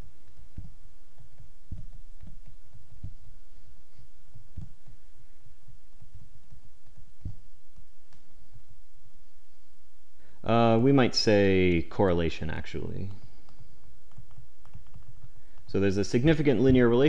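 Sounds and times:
steady low hum: 0.0s - 17.0s
stylus thumps on tablet: 0.5s - 3.2s.

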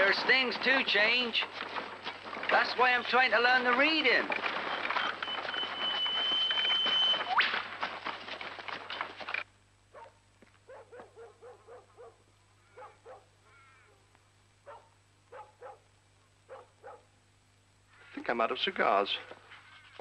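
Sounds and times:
dog barking: 9.9s - 13.4s, 14.6s - 15.9s, 16.5s - 17.1s.

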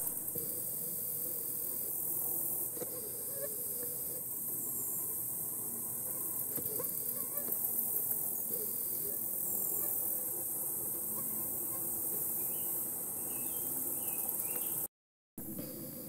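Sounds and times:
high-pitched insect chorus: 0.0s - 14.9s
faint bird chirps: 11.0s - 14.9s.

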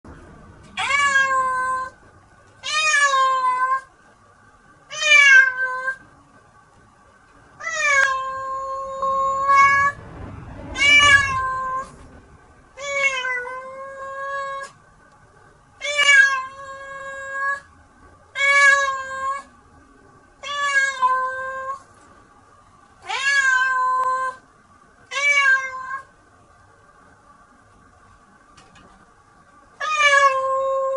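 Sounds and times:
cat meowing: 0.8s - 2.0s, 2.6s - 3.9s, 7.6s - 10.0s, 10.8s - 11.9s, 12.8s - 14.8s, 15.8s - 17.7s, 18.4s - 19.5s, 20.4s - 21.8s, 23.0s - 24.4s, 25.1s - 26.1s, 29.8s - 30.9s.

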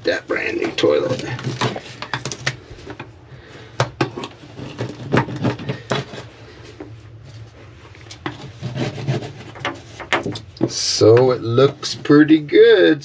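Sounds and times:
low steady hum: 0.0s - 13.0s
scraper scraping plastic: 0.4s - 3.0s, 4.0s - 6.8s, 8.0s - 12.2s.

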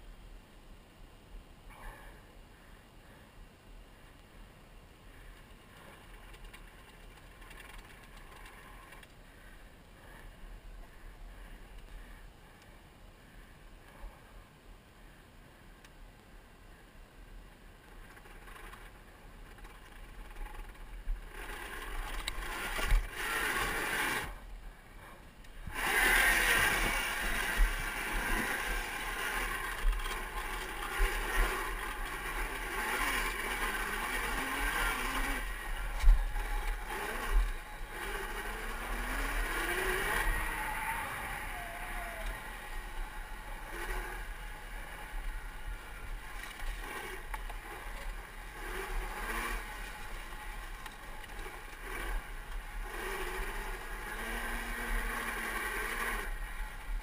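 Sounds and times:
electric motor whine: 25.7s - 57.0s.

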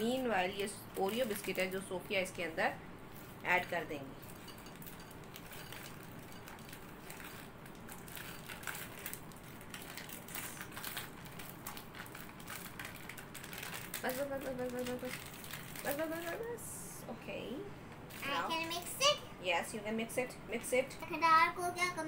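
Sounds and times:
biscuits crunching: 3.1s - 16.3s
plastic wrapper crinkling: 3.1s - 16.6s.

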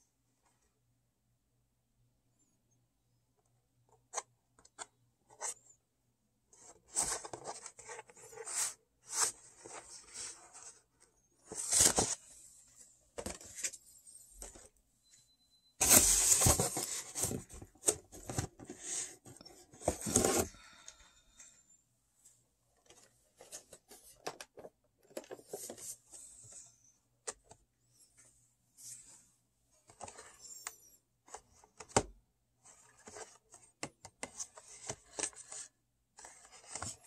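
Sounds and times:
packaging rustling and tearing: 15.8s - 17.6s.

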